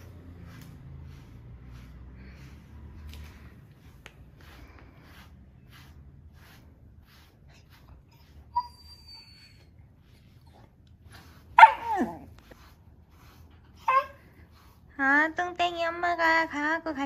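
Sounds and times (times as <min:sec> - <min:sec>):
brush scratching through fur: 0:00.0 - 0:17.0
dog whining: 0:08.0 - 0:10.7, 0:11.5 - 0:12.5, 0:13.8 - 0:14.4.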